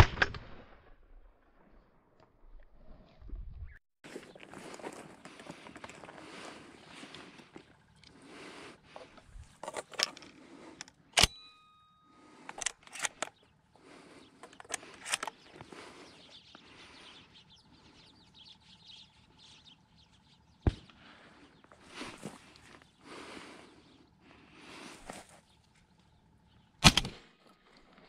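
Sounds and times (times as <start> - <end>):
footsteps through dry grass: 4.0 - 8.0.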